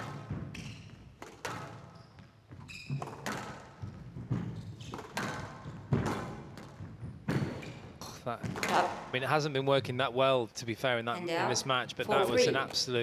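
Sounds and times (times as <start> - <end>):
squash ball hits: 0.0 - 1.9, 2.9 - 9.1
court shoes squeaking: 0.0 - 9.1.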